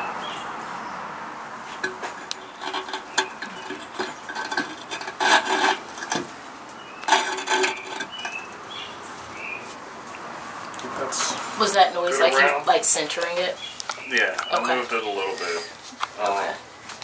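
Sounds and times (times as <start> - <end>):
kiln shelf scraping: 1.7 - 8.6.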